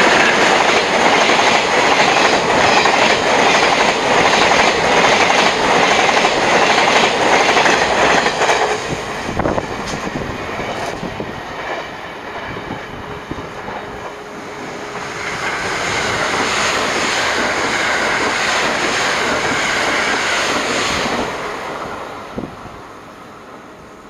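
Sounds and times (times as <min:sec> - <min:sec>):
distant train rumble: 0:00.0 - 0:24.0
train passing at speed: 0:00.0 - 0:24.0
rush of wheels and air: 0:07.6 - 0:13.5.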